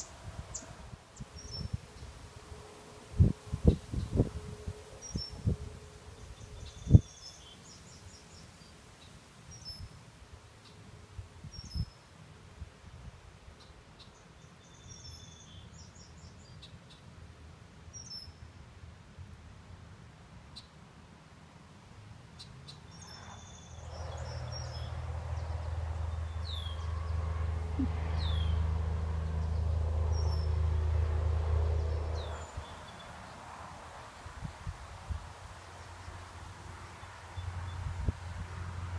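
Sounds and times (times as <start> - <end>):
small birds chirping: 22.4 - 28.6.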